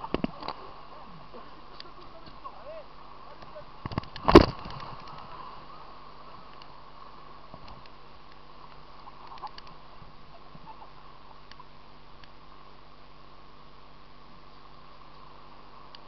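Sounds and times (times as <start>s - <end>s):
faint ticks: 1.3s - 2.5s, 3.4s - 5.4s, 6.4s - 6.8s, 7.5s - 12.4s, 14.7s - 16.0s.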